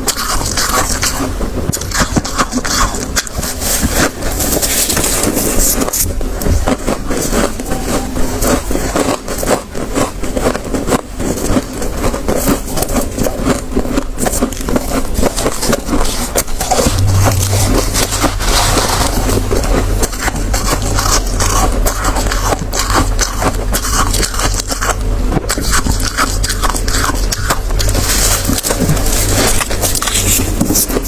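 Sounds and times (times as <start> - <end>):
chewing crunchy frost: 8.4 - 16.2.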